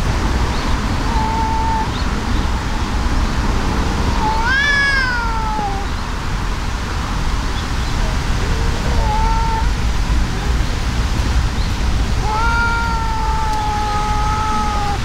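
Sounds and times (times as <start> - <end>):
cats yowling: 1.0 - 2.0, 4.2 - 6.0, 8.5 - 10.6, 12.1 - 15.0.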